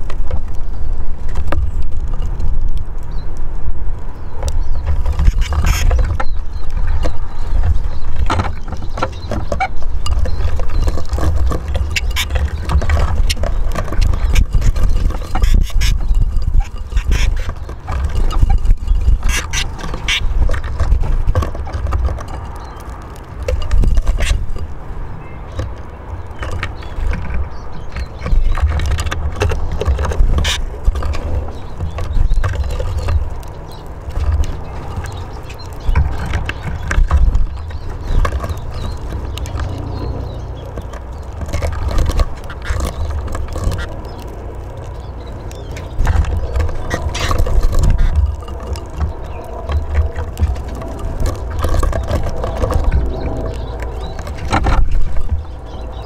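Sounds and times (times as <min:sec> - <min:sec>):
beaks pecking seed on wood: 0:00.0 - 0:56.0
steady low rumble: 0:29.1 - 0:56.0.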